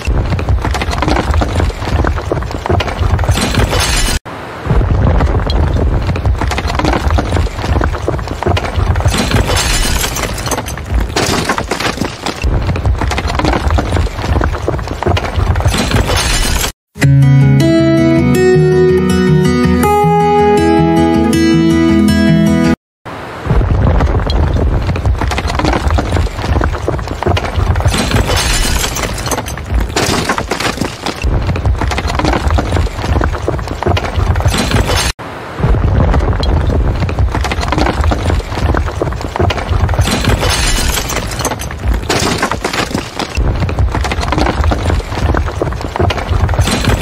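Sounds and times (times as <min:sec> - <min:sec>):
crash of falling debris: 0:00.0 - 0:16.8, 0:23.5 - 0:47.0
heavy rumble: 0:23.5 - 0:29.3.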